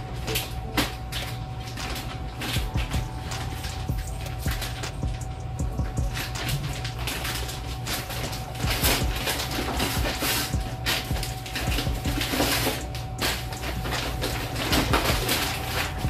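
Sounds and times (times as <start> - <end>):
plastic packaging crinkling: 0.0 - 16.0.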